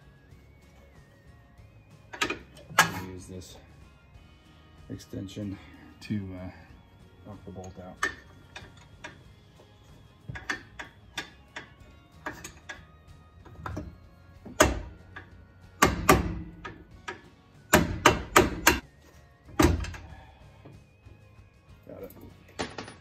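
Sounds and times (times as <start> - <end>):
hammer striking metal: 14.5 - 15.0, 15.8 - 18.8.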